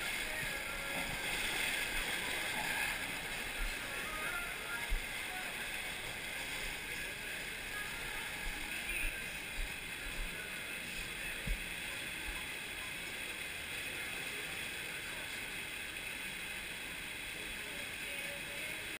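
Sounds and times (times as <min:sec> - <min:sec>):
water gushing from slide tube: 0:00.0 - 0:08.0.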